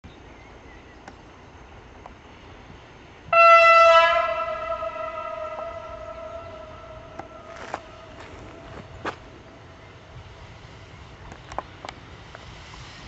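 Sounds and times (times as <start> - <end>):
train horn blast: 3.3 - 9.1.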